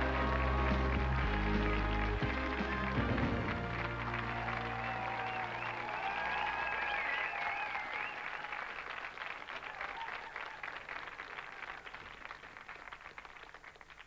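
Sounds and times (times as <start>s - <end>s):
melodic music: 0.0s - 5.9s
audience applauding: 0.0s - 14.0s.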